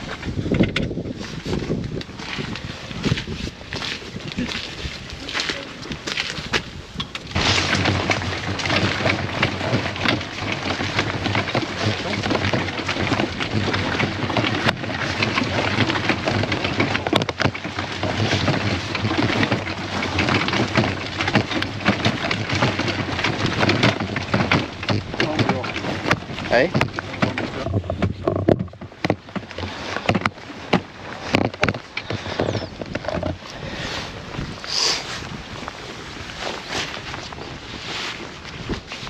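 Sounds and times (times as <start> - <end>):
trolley wheels rolling on gravel: 0.0 - 39.0.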